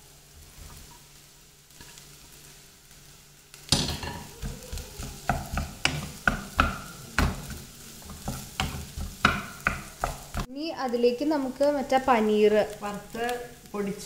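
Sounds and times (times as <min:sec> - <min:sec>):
oil sizzling: 0:00.0 - 0:14.0
spatula scraping a pan: 0:01.7 - 0:02.1, 0:03.7 - 0:10.5.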